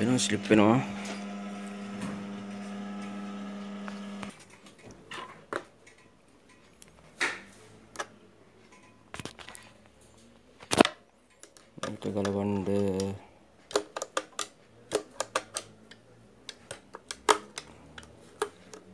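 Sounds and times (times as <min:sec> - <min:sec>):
sewing machine motor humming: 0:00.0 - 0:04.3.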